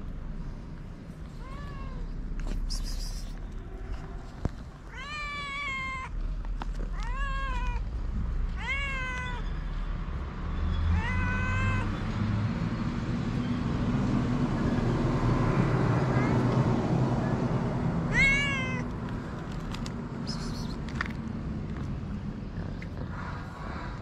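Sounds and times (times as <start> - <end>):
cat meowing: 1.4 - 3.4, 4.9 - 6.2, 6.9 - 7.9, 8.5 - 9.5, 10.9 - 12.0, 16.1 - 16.5, 18.1 - 18.9.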